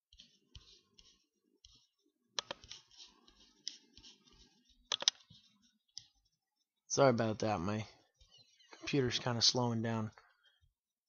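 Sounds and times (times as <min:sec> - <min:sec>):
computer mouse clicking: 0:00.2 - 0:02.9, 0:04.9 - 0:06.1.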